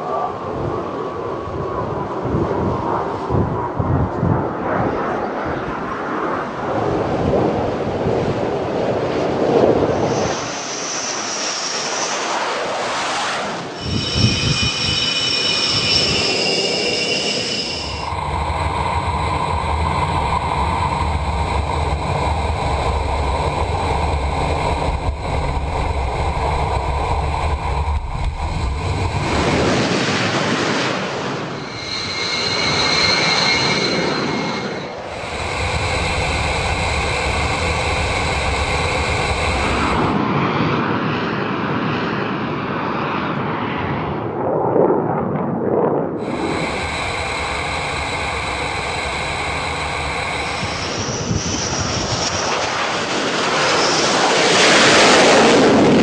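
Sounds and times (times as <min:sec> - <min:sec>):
jet engine roar with turbine whine: 0:00.0 - 0:56.0.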